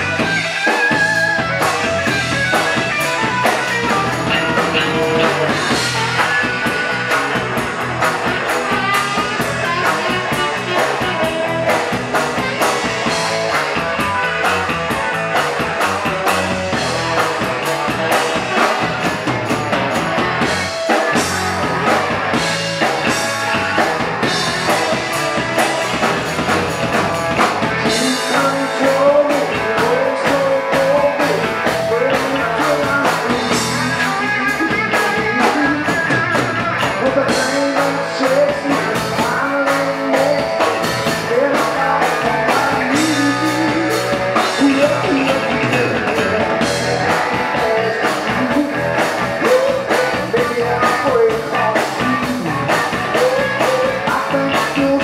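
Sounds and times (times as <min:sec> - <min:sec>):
drum kit beat: 0:00.0 - 0:55.0
electric guitars: 0:00.0 - 0:55.0
saxophone: 0:03.0 - 0:07.5, 0:08.3 - 0:13.2.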